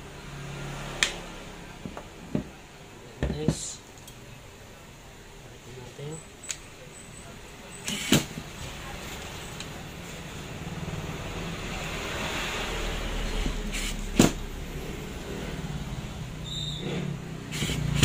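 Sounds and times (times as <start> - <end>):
cordless driver motor whirring: 7.9 - 8.3, 17.5 - 18.0.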